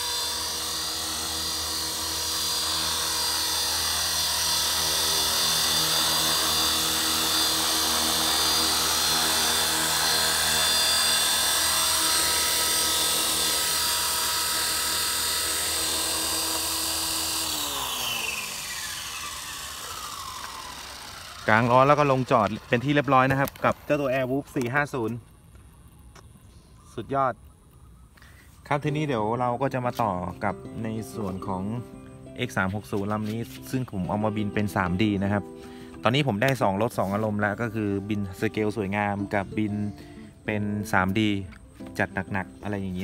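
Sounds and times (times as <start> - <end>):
model helicopter rotor whining: 0.0 - 24.6.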